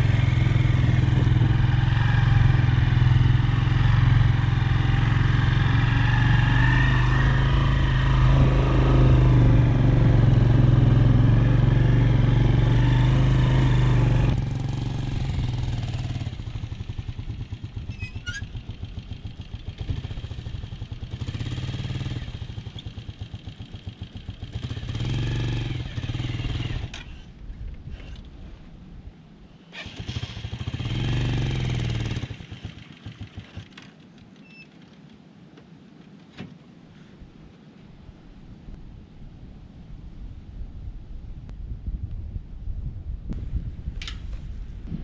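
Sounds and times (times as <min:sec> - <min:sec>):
small motorcycle engine running: 0:00.0 - 0:27.2, 0:29.7 - 0:34.1.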